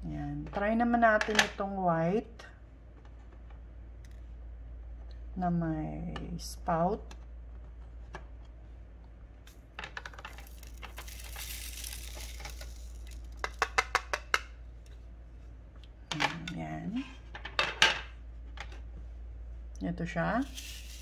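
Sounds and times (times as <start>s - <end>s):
beads rattling into tray: 9.8s - 14.4s, 20.4s - 21.0s.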